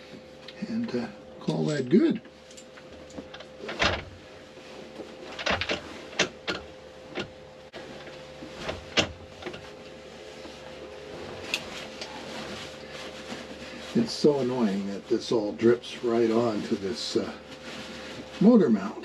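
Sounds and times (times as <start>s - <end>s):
wiping with paper towel: 9.5s - 18.8s.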